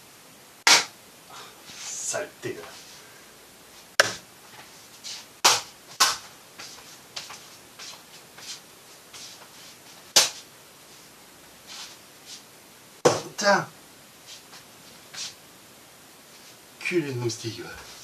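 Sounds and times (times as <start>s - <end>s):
sharp hand slaps: 0.6s - 0.9s, 4.0s - 4.2s, 5.4s - 6.3s, 10.2s - 10.4s.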